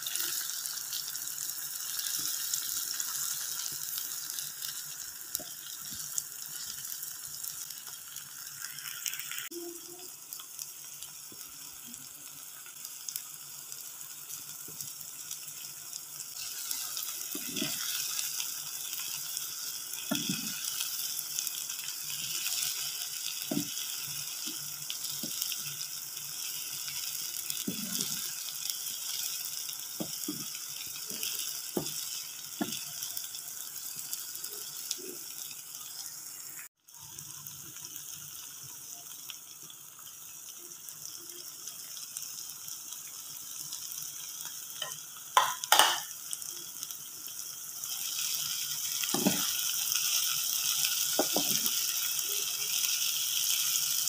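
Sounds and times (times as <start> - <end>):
spice paste sizzling in oil: 0.0 - 54.0
spatula knocking against pan: 45.4 - 46.0.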